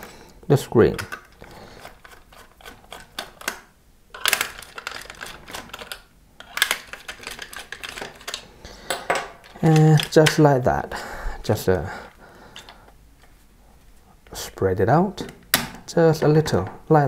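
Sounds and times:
screwdriver clicks and scrapes: 0.9 - 3.6.

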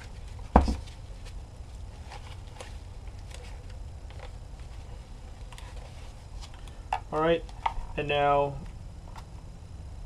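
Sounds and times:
soft rustles: 0.0 - 6.8
steady low hum: 0.0 - 10.0.

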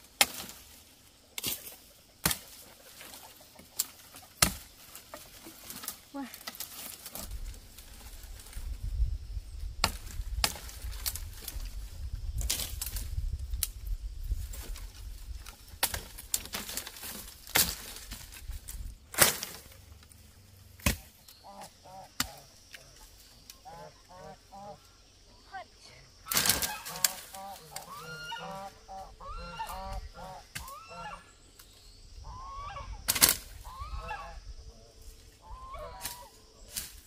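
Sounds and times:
machete chopping woody stems: 0.1 - 0.7, 1.4 - 3.2, 3.8 - 7.3, 9.8 - 11.6, 15.8 - 18.4, 19.1 - 19.8, 20.8 - 21.2, 22.1 - 22.4, 26.3 - 27.9, 33.1 - 33.5
geese honking: 21.4 - 25.0, 26.2 - 31.3, 32.2 - 34.5, 35.4 - 36.4.

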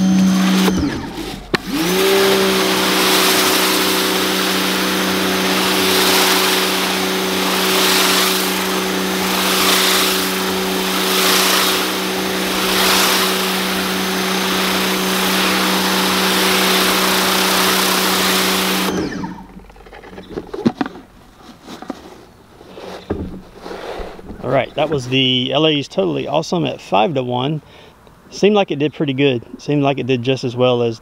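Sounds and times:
pressure washer motor hum: 0.0 - 20.8
water spraying onto concrete: 1.7 - 18.9.

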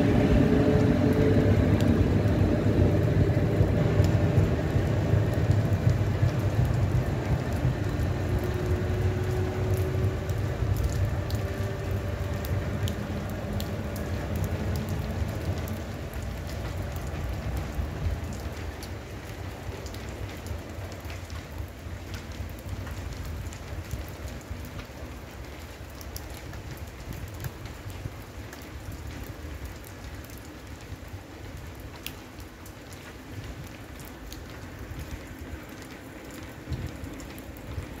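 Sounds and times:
low fluctuating rumble: 0.0 - 18.6
rain falling: 0.0 - 38.0.

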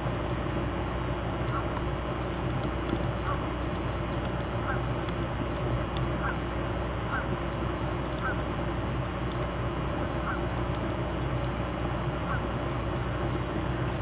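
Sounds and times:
low hum: 0.0 - 14.0
short animal calls: 1.5 - 1.8, 3.2 - 3.5, 6.2 - 6.5, 7.1 - 7.4, 10.2 - 10.5, 12.2 - 12.5.

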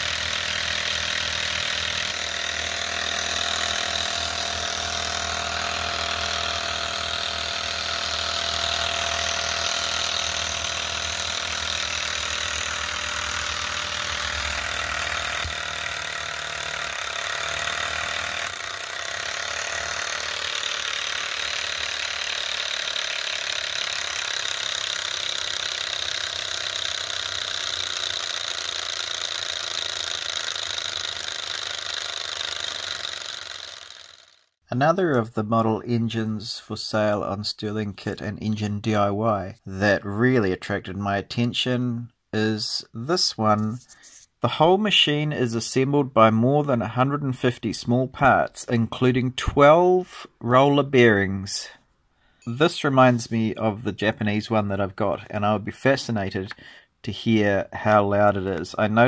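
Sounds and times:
engine mechanical running noise: 0.0 - 34.5.

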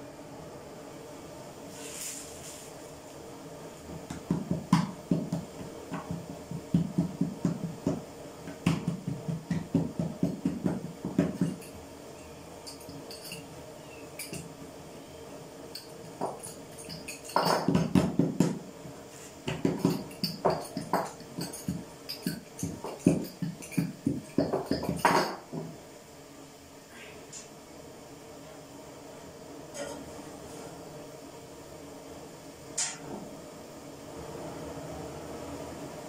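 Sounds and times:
hands patting dough: 3.8 - 11.8, 16.1 - 25.7.

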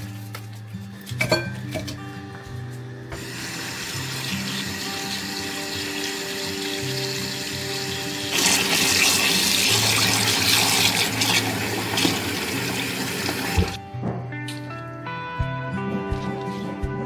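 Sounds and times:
tap water running into bowl: 3.2 - 13.8.

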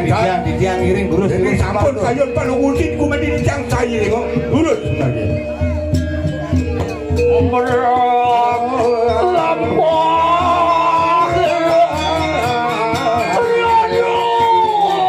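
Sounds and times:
gamelan percussion: 0.0 - 15.0
person singing a wavering chant: 7.5 - 15.0.

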